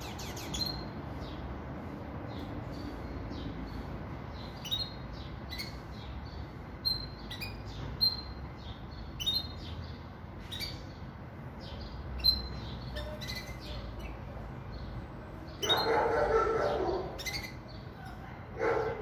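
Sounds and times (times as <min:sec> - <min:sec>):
bird short high chirps: 0:12.2 - 0:14.2.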